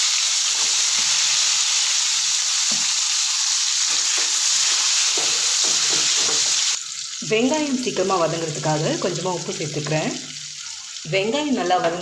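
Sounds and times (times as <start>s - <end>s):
shallots sizzling in hot oil: 0.0s - 12.0s
spatula knocking on pan: 3.9s - 6.6s.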